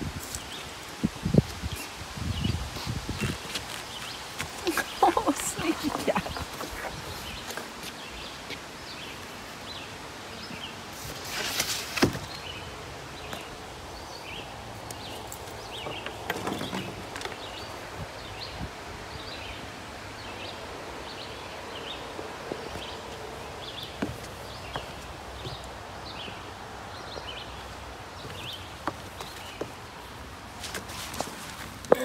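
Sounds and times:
rustle: 0:00.0 - 0:32.0.

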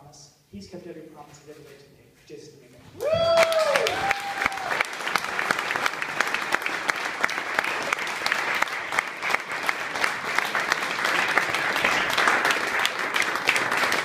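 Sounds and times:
audience applauding: 0:03.0 - 0:14.0.

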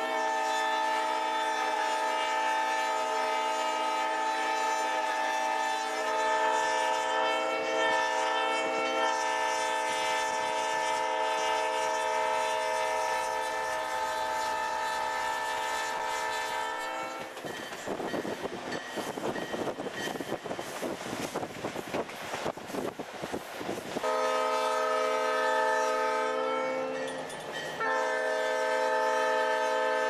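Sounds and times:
locomotive air horn blast: 0:00.0 - 0:17.3, 0:23.9 - 0:27.1, 0:27.8 - 0:30.0.

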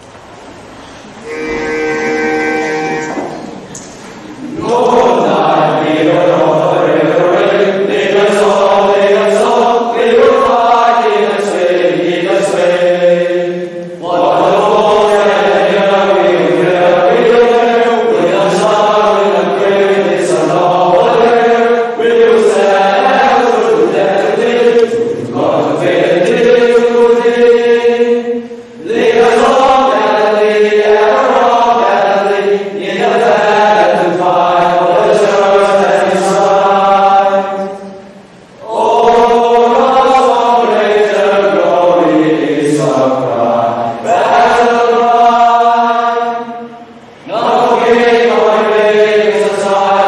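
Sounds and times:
male choir singing: 0:01.2 - 0:03.6, 0:04.4 - 0:50.0.

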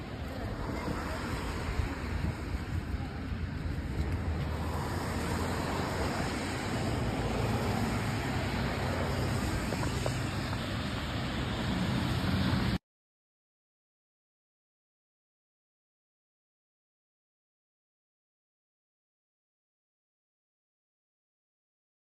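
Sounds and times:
wind buffeting microphone: 0:00.0 - 0:11.9
road traffic rumble: 0:00.0 - 0:12.8.

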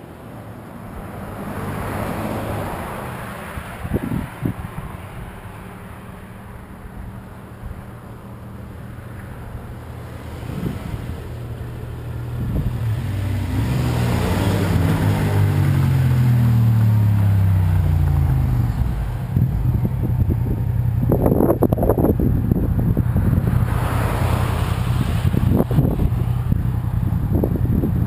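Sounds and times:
vehicle driving past: 0:09.1 - 0:22.2, 0:22.9 - 0:27.4.

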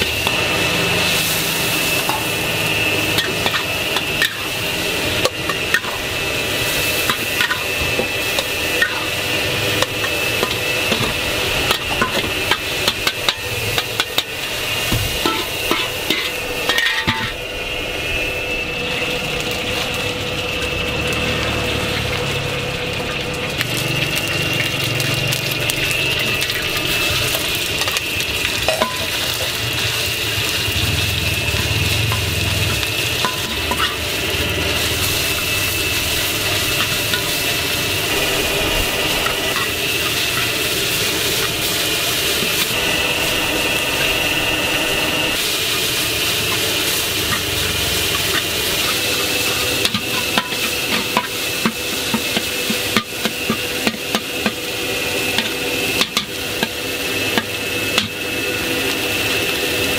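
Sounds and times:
meat sizzling in a wok: 0:00.0 - 0:59.9
metal spatula scraping wok: 0:00.2 - 0:17.4, 0:28.5 - 0:43.4, 0:45.3 - 0:54.6.

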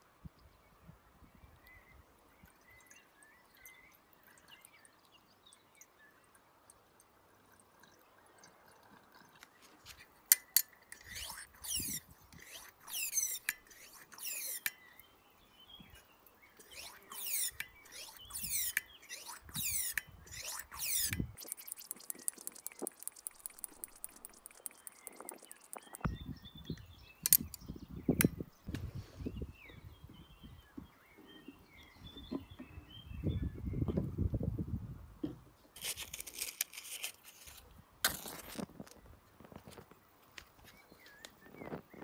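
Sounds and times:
fuel trickling: 0:02.6 - 0:26.1
squeaky hissing hand pump strokes: 0:10.4 - 0:14.8, 0:16.6 - 0:26.1
fast ticks: 0:16.6 - 0:26.1.

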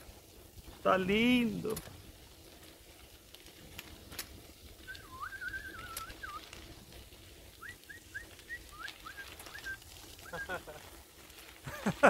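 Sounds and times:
short rising whistles: 0:04.8 - 0:06.5, 0:07.6 - 0:10.6
wavering whistle: 0:04.8 - 0:06.5, 0:07.6 - 0:10.5.

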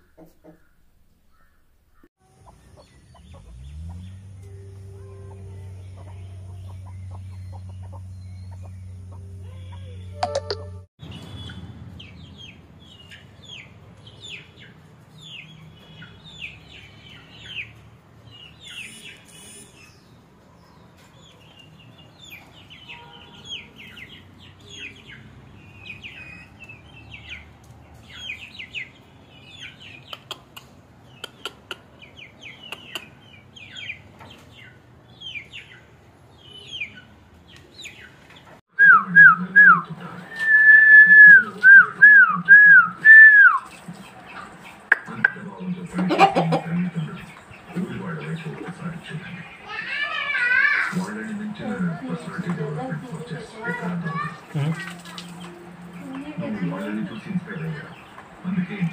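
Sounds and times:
small birds chirping: 0:00.0 - 0:58.9
person whistling: 0:40.4 - 0:43.6.

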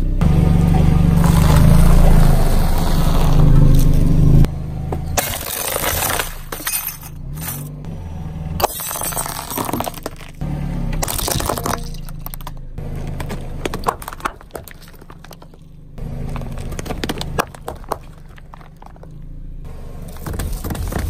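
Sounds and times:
tyre crunching cookies: 0:08.6 - 0:19.3.

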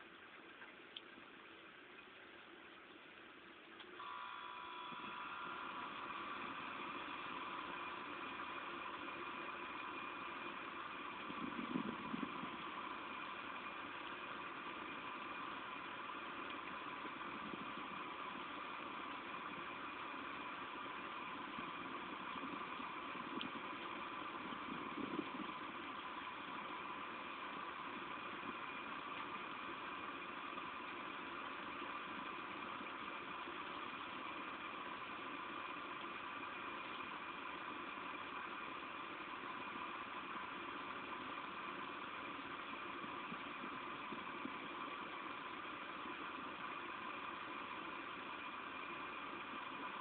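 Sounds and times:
steady rain hiss: 0:00.0 - 0:50.0.

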